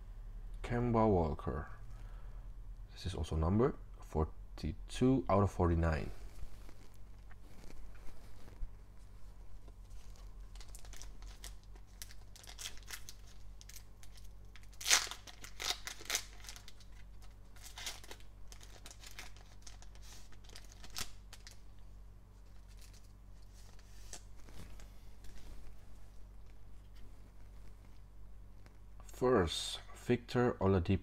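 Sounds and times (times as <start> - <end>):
cards rustling: 6.1 - 21.6, 22.5 - 28.9
foil card pack crinkling and tearing: 10.5 - 21.6.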